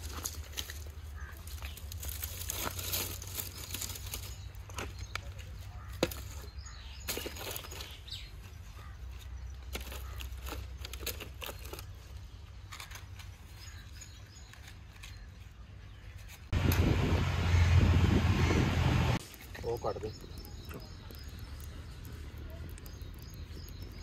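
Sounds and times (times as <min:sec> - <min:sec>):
twigs and planks knocking: 0:00.0 - 0:07.9
steady low rumble: 0:16.5 - 0:19.2.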